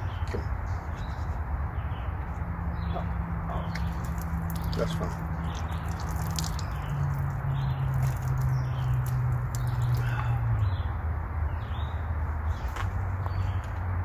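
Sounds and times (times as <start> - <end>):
water dripping onto gravel: 3.5 - 10.6
water splashing over hands: 3.6 - 10.4.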